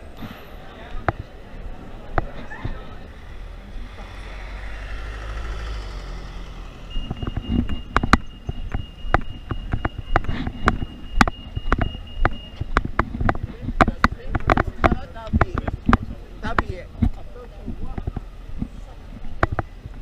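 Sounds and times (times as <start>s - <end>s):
road traffic rumble: 0.0s - 20.0s
crossing signal electronic tone: 4.1s - 12.8s
footsteps on road: 6.6s - 20.0s.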